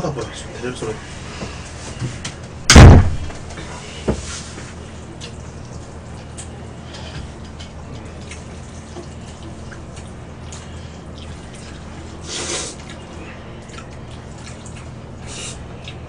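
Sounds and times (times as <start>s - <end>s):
wet eating sounds: 4.7s - 16.0s
noodles being slurped: 8.2s - 16.0s.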